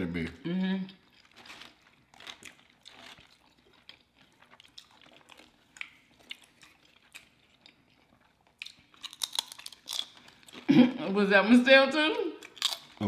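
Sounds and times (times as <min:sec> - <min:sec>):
chewing: 0:00.9 - 0:10.7, 0:12.4 - 0:13.0
tortilla chips crunching: 0:01.0 - 0:10.8, 0:12.4 - 0:13.0
chips crackling: 0:01.2 - 0:05.3, 0:08.7 - 0:10.7, 0:12.4 - 0:13.0.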